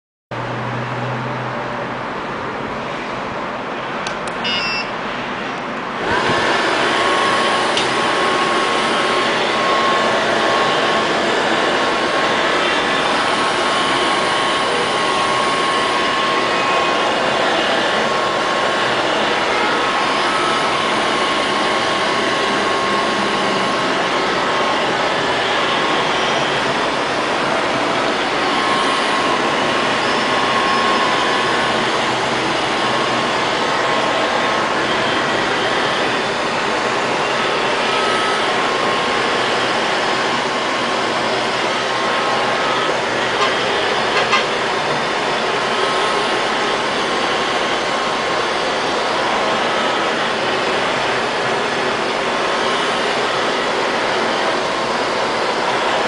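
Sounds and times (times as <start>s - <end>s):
short beeps: 4.3s - 5.0s
vacuum suction motor whining: 6.0s - 56.0s.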